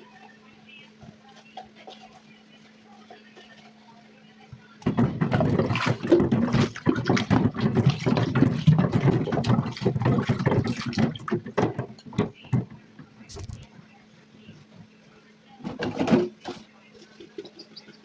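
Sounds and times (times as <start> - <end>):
tap water splashing in sink: 4.8 - 12.7.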